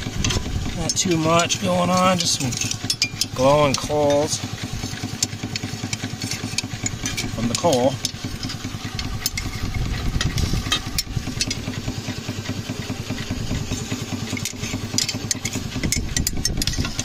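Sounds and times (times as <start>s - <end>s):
poker stirring coals: 0.0s - 17.0s
steam engine blower rumble: 0.0s - 17.0s.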